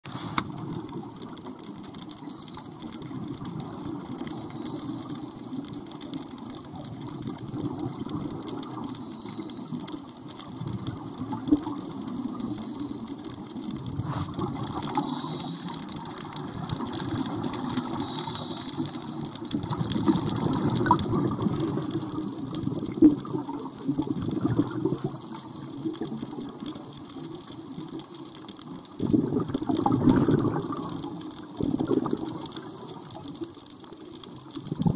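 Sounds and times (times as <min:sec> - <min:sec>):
regulator bubbles gurgling: 0:00.0 - 0:34.9
low muffled underwater rumble: 0:13.7 - 0:15.6.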